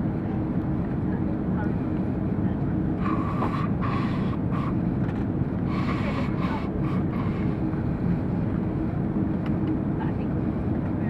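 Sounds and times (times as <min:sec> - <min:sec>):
airplane cabin rumble: 0:00.0 - 0:11.0
jet engines idling: 0:00.0 - 0:11.0.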